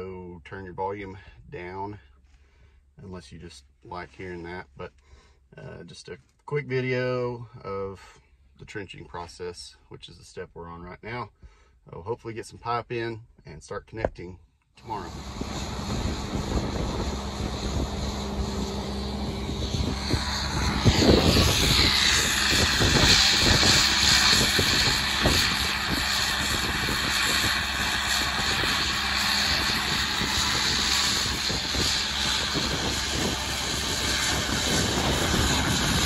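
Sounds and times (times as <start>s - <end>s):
wind buffeting microphone: 14.9s - 36.0s
trencher engine under load: 15.1s - 36.0s.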